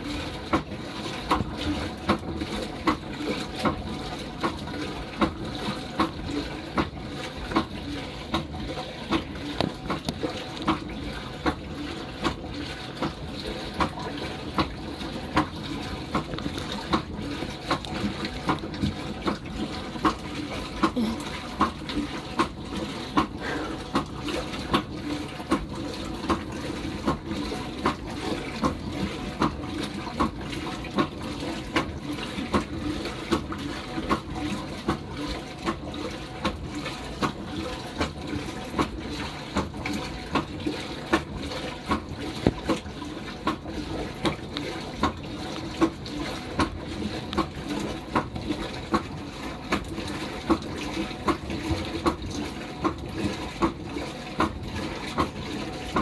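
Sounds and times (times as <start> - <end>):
water churning in washing machine: 0.0 - 56.0
sharp splash or knock: 42.4 - 42.8.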